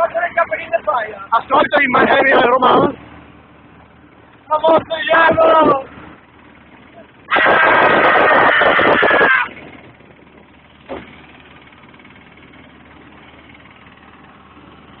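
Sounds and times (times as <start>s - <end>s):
vehicle running: 0.0s - 15.0s
person yelling: 4.5s - 5.9s, 7.3s - 9.5s.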